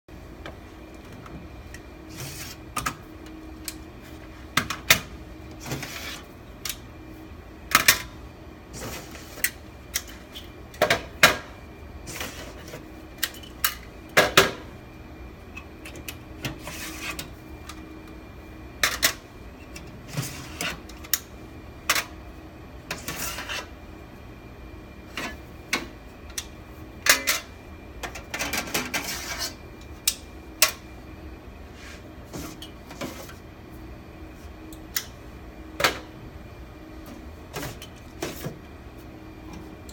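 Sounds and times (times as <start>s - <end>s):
steady machine hum: 0.1s - 39.9s.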